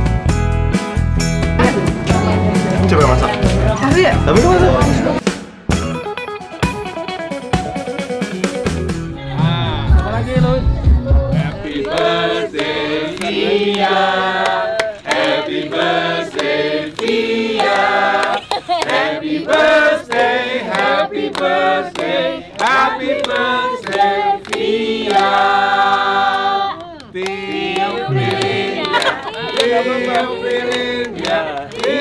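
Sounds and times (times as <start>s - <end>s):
group singing: 1.6s - 5.2s, 9.2s - 32.0s
hands clapping in time: 11.8s - 32.0s.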